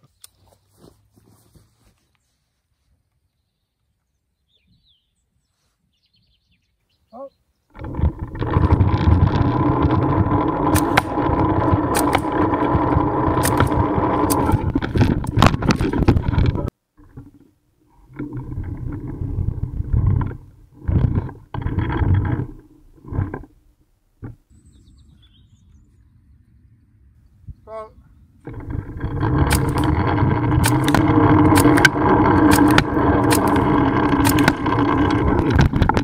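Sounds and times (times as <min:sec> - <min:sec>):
sharp cracks: 0:07.7 - 0:16.7, 0:28.4 - 0:36.0
bursts of rumbling noise: 0:07.7 - 0:23.6, 0:25.9 - 0:36.0
zipline pulley grinding whine: 0:07.7 - 0:23.6, 0:28.4 - 0:36.0.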